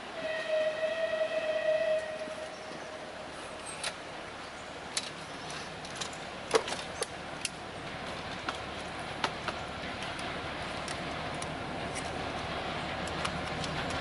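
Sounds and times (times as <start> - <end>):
sharp irregular clicks: 13.0 - 14.0.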